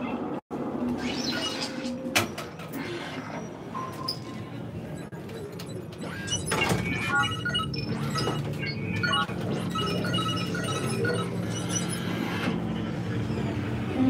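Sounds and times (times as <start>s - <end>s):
short electronic bleeps: 5.0s - 12.3s.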